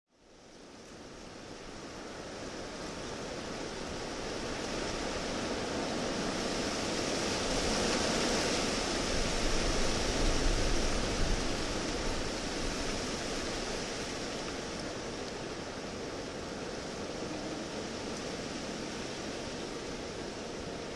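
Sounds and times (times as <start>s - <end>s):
low wind buffets: 0.5s - 20.9s
wind rushing hiss: 1.8s - 20.9s.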